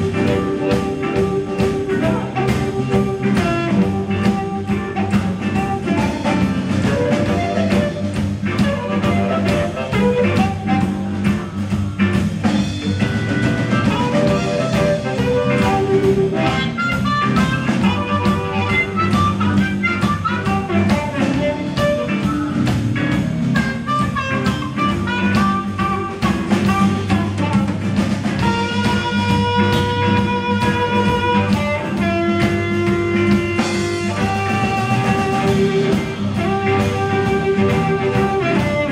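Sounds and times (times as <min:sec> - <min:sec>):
harmonica: 0:00.0 - 0:11.9, 0:12.7 - 0:38.9
drum kit steady beat: 0:00.0 - 0:38.9
electric guitar: 0:00.0 - 0:38.9.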